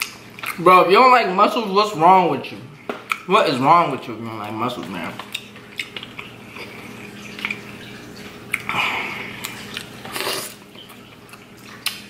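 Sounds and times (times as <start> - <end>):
wet eating sounds: 0.0 - 2.0, 2.6 - 12.0
aquarium filter trickle and hum: 0.0 - 12.0.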